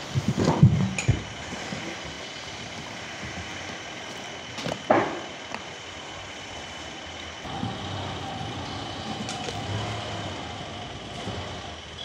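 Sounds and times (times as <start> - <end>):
sawmill machinery high whine: 0.0 - 12.0.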